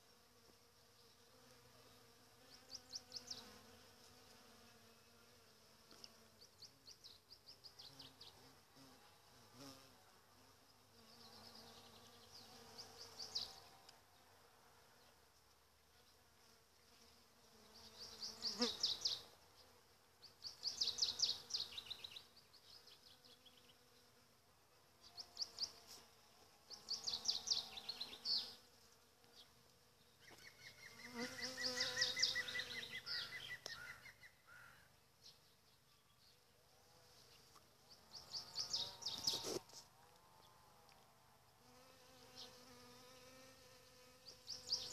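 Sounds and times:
bees buzzing: 30.8s - 33.3s.

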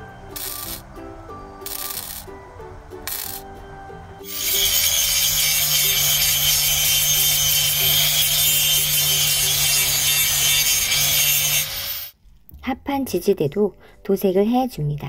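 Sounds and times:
angle grinder grinding steel: 4.2s - 12.2s.

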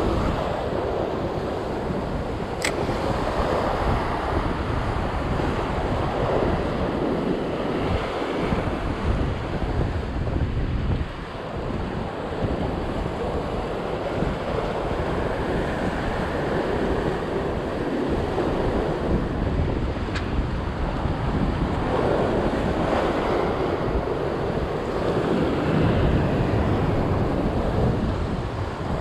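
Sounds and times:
wind buffeting microphone: 0.0s - 29.0s
short click: 2.6s - 2.8s.

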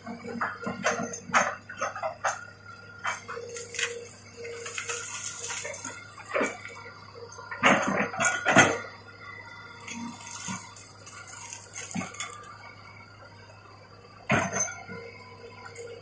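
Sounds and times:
excavator engine hum: 0.0s - 16.0s
branches cracking and snapping: 3.6s - 4.0s, 10.1s - 12.4s.

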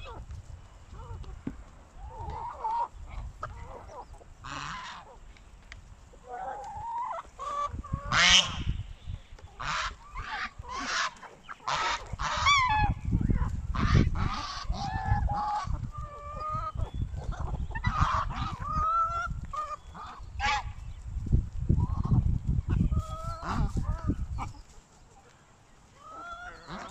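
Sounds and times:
geese honking: 2.1s - 5.2s, 6.2s - 8.6s, 9.6s - 20.7s, 23.0s - 24.5s, 26.0s - 26.9s.

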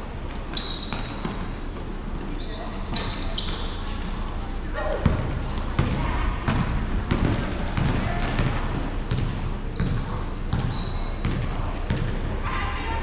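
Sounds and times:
sneaker squeaks: 0.2s - 13.0s
basketball bouncing on hardwood: 5.0s - 12.2s.

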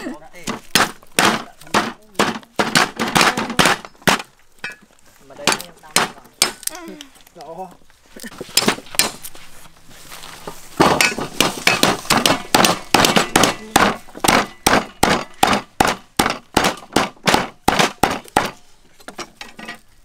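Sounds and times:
wooden pestle pounding on wood: 0.4s - 4.4s, 5.4s - 6.6s, 10.8s - 18.6s.

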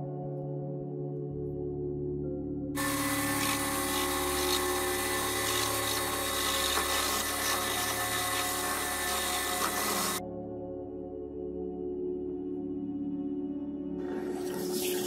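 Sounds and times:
end mill cutting brass: 2.8s - 10.2s.

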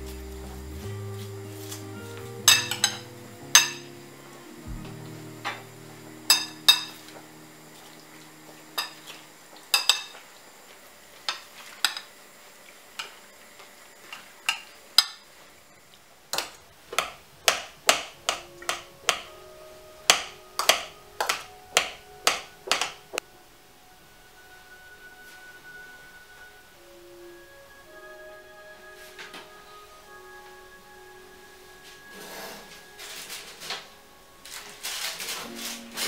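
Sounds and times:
fork clinking against glass bowl: 2.5s - 3.9s, 6.3s - 7.0s, 8.8s - 10.2s.

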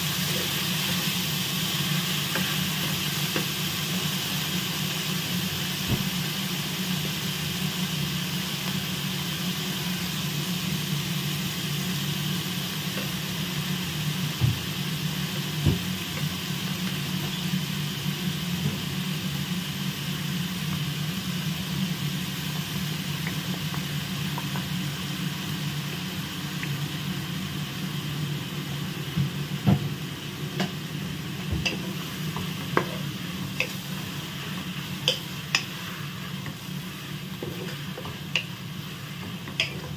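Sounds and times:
spatula stirring in a pan: 0.0s - 4.2s, 31.6s - 39.9s
food sizzling in oil: 0.0s - 39.9s
spatula tapping a pan: 35.0s - 35.7s, 37.6s - 38.5s, 39.5s - 39.9s.

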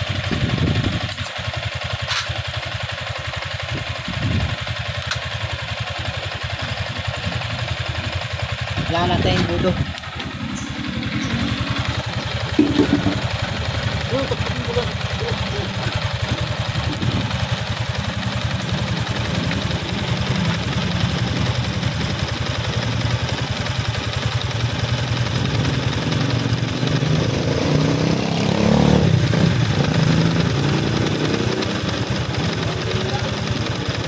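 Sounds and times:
motorcycle engine idling: 0.0s - 34.0s.

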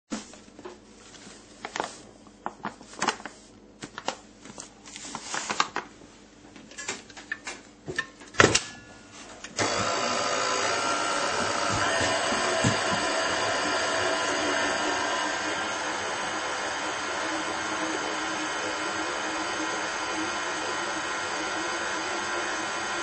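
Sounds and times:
stand mixer motor running: 9.6s - 23.0s.

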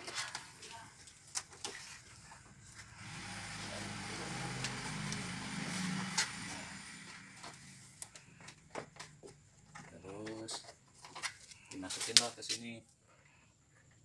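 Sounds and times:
vehicle passing by: 2.7s - 8.7s.

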